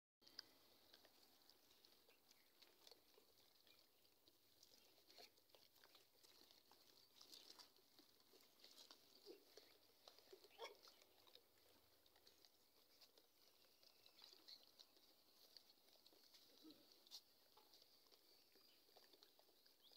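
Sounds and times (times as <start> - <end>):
faint clicks and patter: 0.2 - 19.9.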